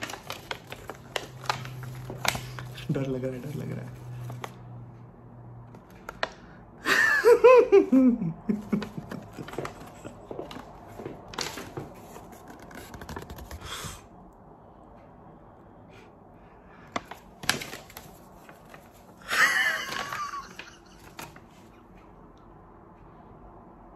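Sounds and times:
woman laughing nervously: 6.8 - 10.7, 19.2 - 21.4.

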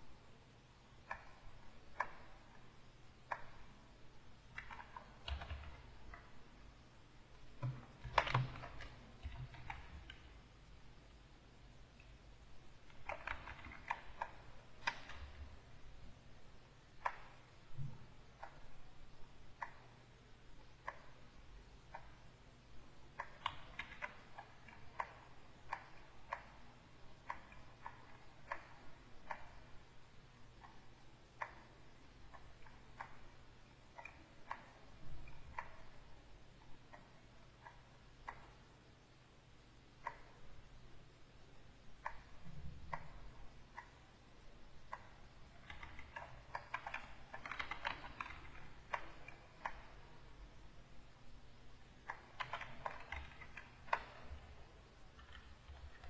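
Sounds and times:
keyboard keys clicking: 4.5 - 6.3, 7.5 - 10.3, 12.8 - 15.5, 23.1 - 26.6, 44.8 - 50.0, 52.0 - 56.0.

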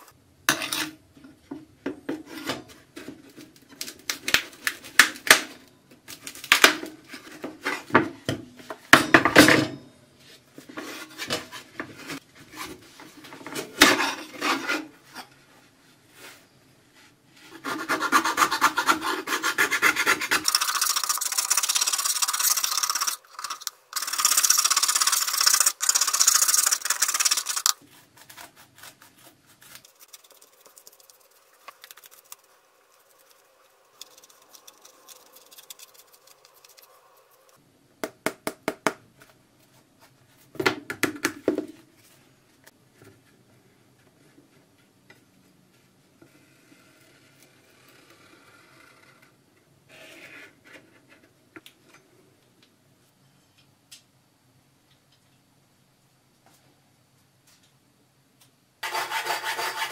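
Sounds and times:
marker scratching: 17.7 - 27.7, 29.8 - 32.4, 34.0 - 37.5.

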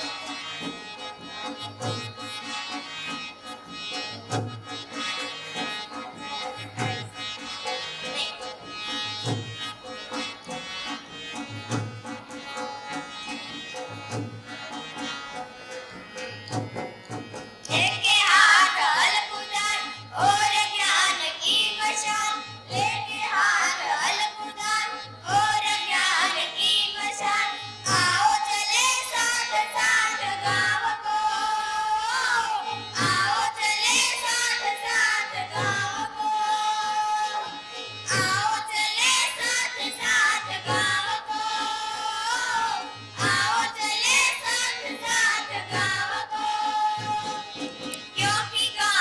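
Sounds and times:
high singing voice: 17.6 - 49.0.

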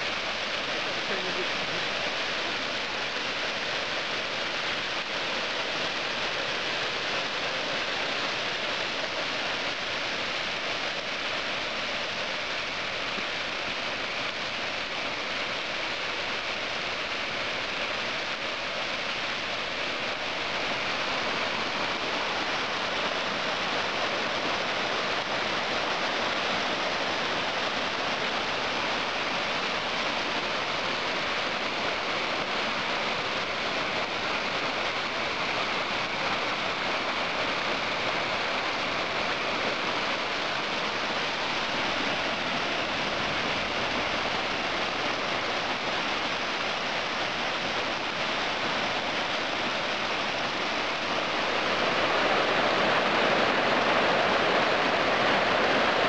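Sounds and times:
water rushing over rocks: 0.0 - 56.0.

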